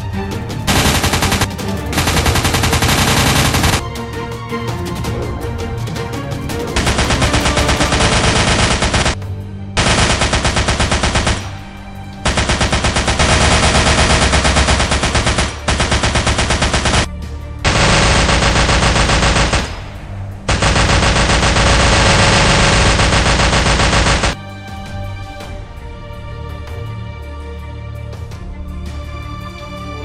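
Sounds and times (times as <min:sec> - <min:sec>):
machine-gun automatic fire: 0:00.7 - 0:03.8, 0:06.8 - 0:09.2, 0:09.8 - 0:11.6, 0:12.2 - 0:17.1, 0:17.7 - 0:24.4.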